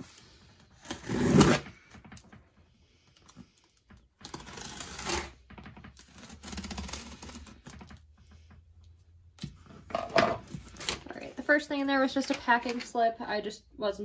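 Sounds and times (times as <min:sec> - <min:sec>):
scissors slitting packing tape: 0:06.0 - 0:07.6.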